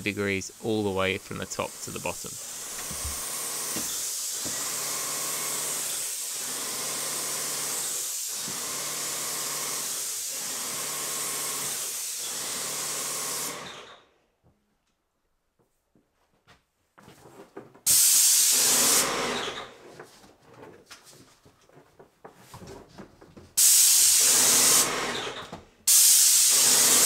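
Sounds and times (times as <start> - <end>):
paint spray gun hissing: 0.0 - 13.6, 17.9 - 19.3, 23.6 - 25.0, 25.9 - 27.0.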